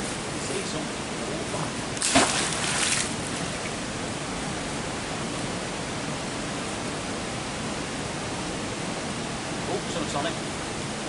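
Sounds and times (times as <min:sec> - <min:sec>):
water rushing from a weir: 0:01.6 - 0:04.3
magnet splashing into water: 0:02.0 - 0:03.1.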